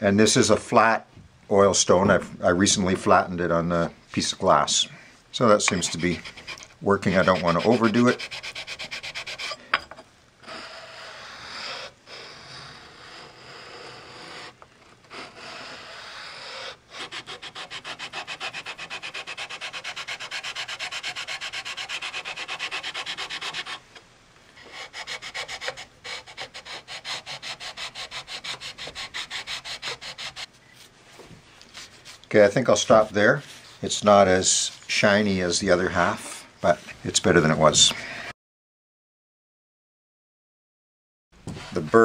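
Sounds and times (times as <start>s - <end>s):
oil stone rubbing on metal: 5.6s - 9.8s, 10.4s - 23.8s, 24.6s - 30.5s.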